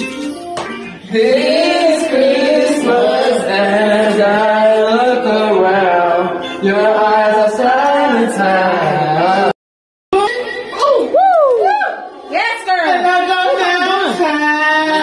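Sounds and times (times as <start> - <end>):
karaoke music: 0.0 - 15.0
man singing into microphone: 1.0 - 9.6.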